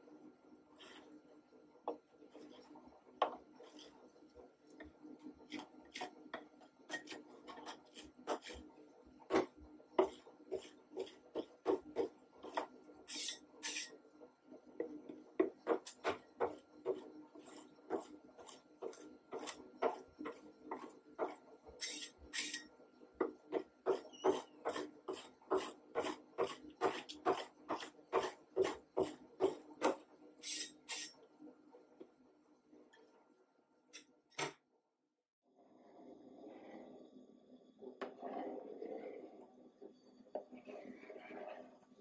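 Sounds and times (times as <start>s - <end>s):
metal spatulas scraping and tapping: 6.9s - 8.6s, 11.7s - 13.9s, 16.9s - 22.6s, 23.9s - 31.1s.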